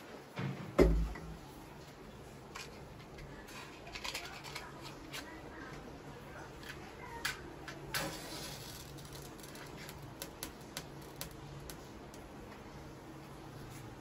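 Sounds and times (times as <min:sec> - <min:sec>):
match scratching and flaring: 0:07.9 - 0:12.0.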